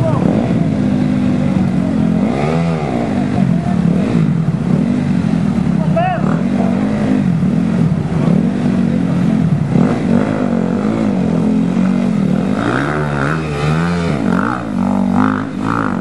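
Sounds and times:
off-road motorcycle engines revving: 0.0s - 16.0s.

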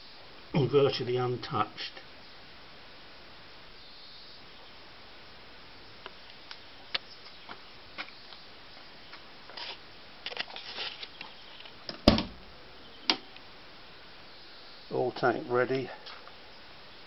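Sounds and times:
rustling: 6.0s - 12.5s.

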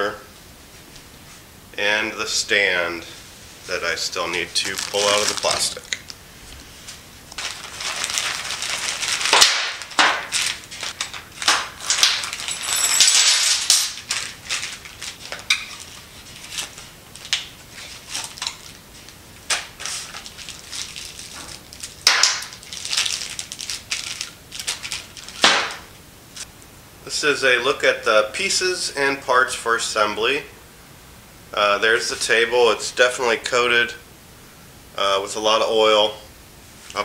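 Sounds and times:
plastic bags crinkling: 4.0s - 6.2s, 7.3s - 25.9s.

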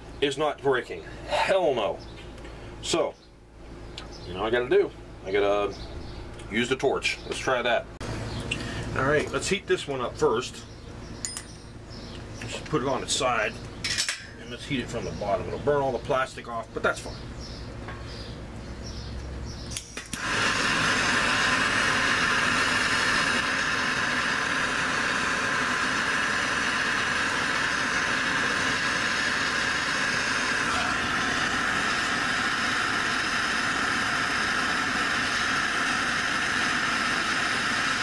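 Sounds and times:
torch igniter click: 19.2s - 38.0s
torch flame hissing: 19.8s - 38.0s.

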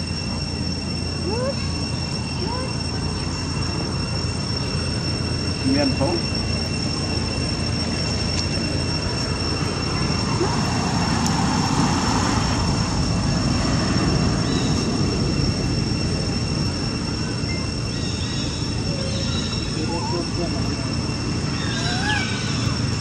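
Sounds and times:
high-pitched whine: 0.0s - 23.0s.

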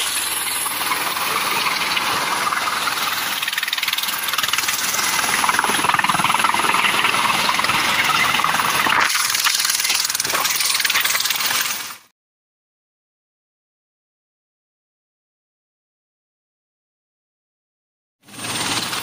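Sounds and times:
helicopter turbine and rotor: 0.0s - 12.1s, 18.2s - 19.0s.

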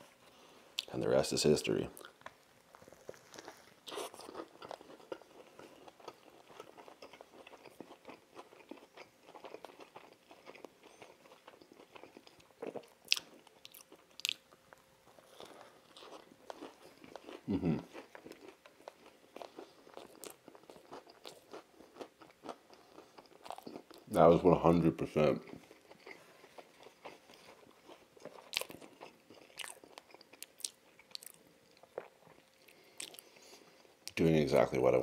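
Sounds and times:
chewing crunchy food: 1.9s - 24.2s, 25.0s - 34.7s.

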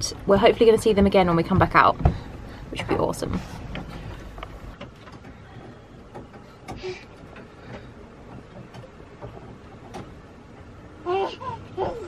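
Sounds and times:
faint clicks and knocks: 0.5s - 10.8s.

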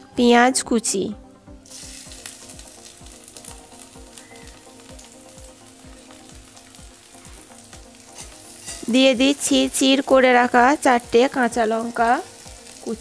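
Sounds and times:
onion sizzling in hot oil: 1.6s - 13.0s
spatula stirring in metal pan: 7.7s - 9.5s.

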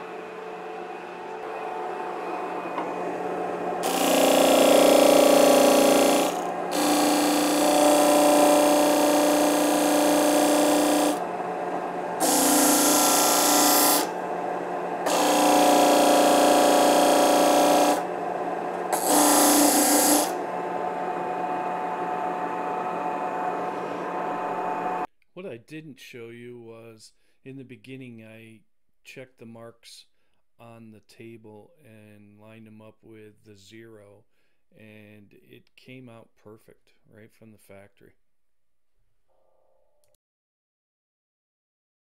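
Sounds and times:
disc sander motor hum: 0.0s - 25.1s
wood grinding on sander: 3.8s - 11.4s, 12.0s - 25.0s.

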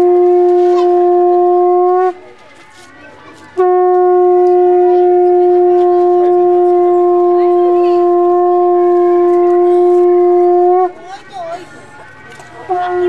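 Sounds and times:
conch shell blown: 0.0s - 2.3s, 3.6s - 11.0s, 12.6s - 13.0s.

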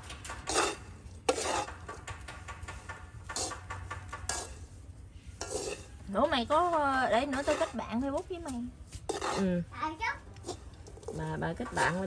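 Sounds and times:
chopsticks scraping in a wok: 0.0s - 12.0s.

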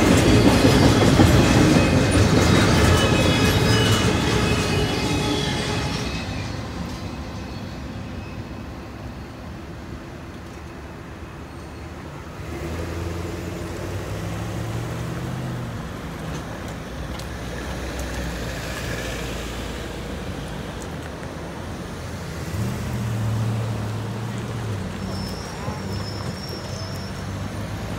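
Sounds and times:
car engines: 9.1s - 27.9s.

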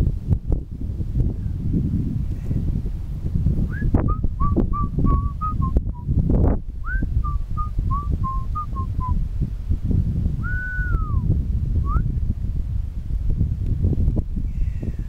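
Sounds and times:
wind rumbling on microphone: 0.0s - 15.0s
person whistling a tune: 3.7s - 6.1s, 6.8s - 9.2s, 10.4s - 12.1s.

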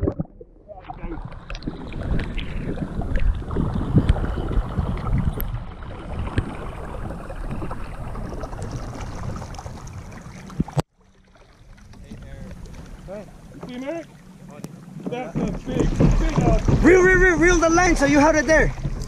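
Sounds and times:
wind buffeting camera: 0.0s - 10.8s, 15.2s - 19.0s
sea water sloshing: 0.0s - 19.0s.

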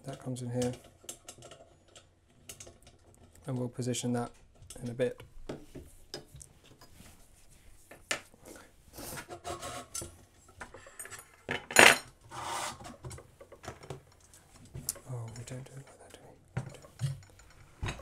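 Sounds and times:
parts clicking and knocking: 0.0s - 7.0s, 12.9s - 18.0s
parts scraping on metal: 10.7s - 13.2s.

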